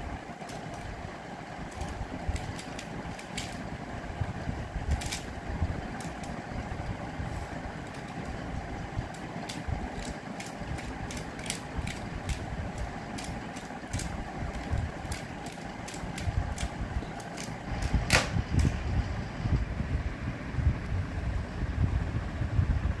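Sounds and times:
plastic puzzle clicking: 0.4 - 0.9, 1.7 - 3.7, 4.9 - 5.3, 5.9 - 6.4, 9.1 - 18.2
loud plastic clack: 13.1 - 18.8.

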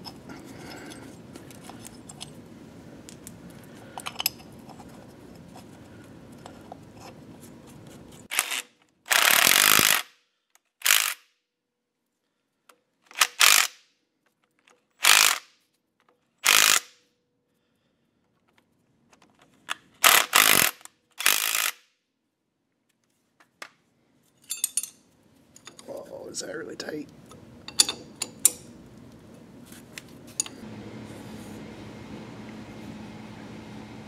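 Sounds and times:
metal parts clicking: 24.4 - 25.9.

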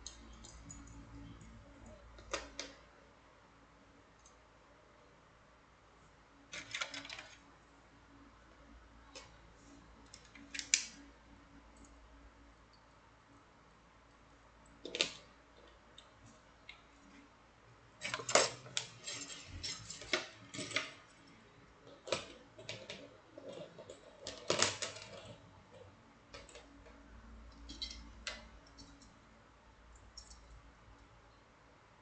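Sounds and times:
metal wire puzzles clinking: 18.0 - 21.3, 27.5 - 29.1.

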